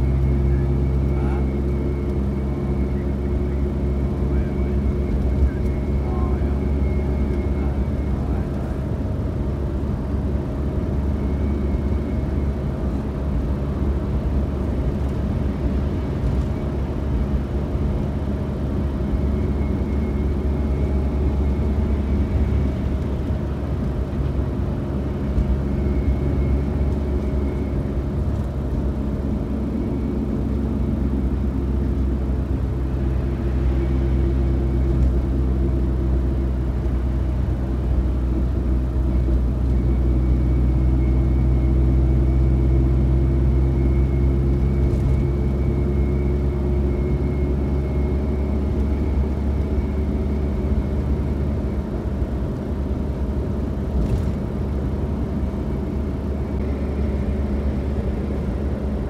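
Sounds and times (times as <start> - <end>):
faint high whine: 0.0 - 8.9
car road noise and engine hum: 0.0 - 59.0.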